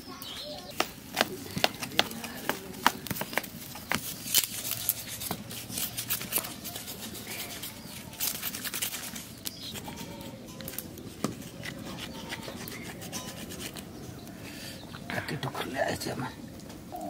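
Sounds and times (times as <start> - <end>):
knife scraping goat head: 2.3 - 14.2.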